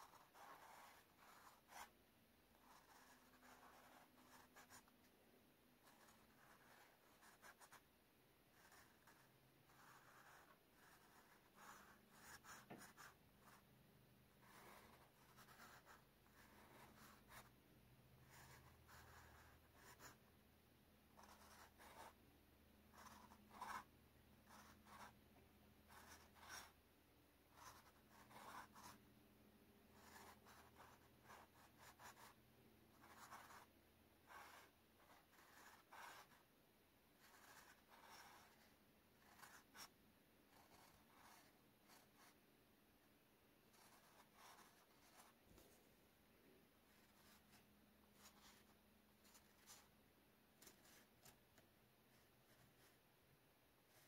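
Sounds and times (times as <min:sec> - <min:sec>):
marker scratching on card: 0:00.0 - 0:05.0, 0:05.8 - 0:07.9, 0:08.5 - 0:13.7, 0:14.3 - 0:17.6, 0:18.2 - 0:20.2, 0:21.1 - 0:22.2, 0:22.9 - 0:25.2, 0:25.8 - 0:26.8, 0:27.5 - 0:29.0, 0:29.9 - 0:36.5, 0:37.2 - 0:42.4, 0:43.6 - 0:45.8, 0:46.9 - 0:49.9, 0:50.6 - 0:53.0.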